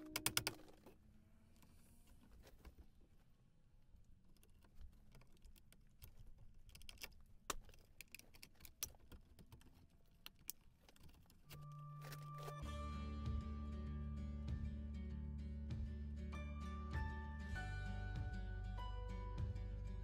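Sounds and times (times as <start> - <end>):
background music: 11.6 - 20.0.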